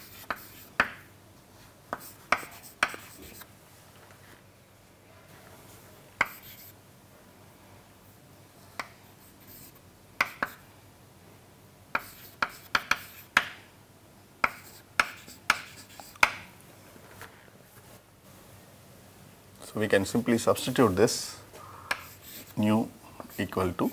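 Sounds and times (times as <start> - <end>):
chalk tapping and scratching: 0.0 - 1.0, 1.9 - 3.5, 6.2 - 6.8, 8.7 - 10.6, 12.0 - 13.6, 14.4 - 16.4, 21.9 - 23.9.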